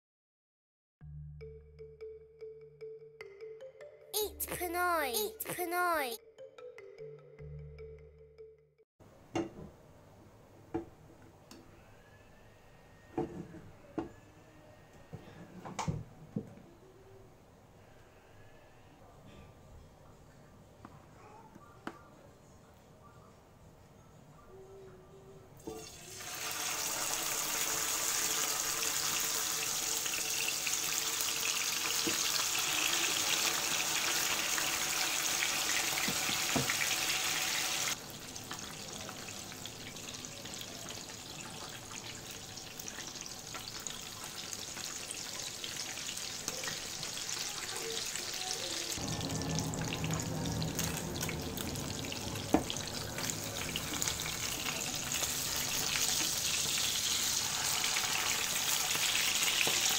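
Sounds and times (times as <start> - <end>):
fish sizzling in hot oil: 25.8 - 59.9.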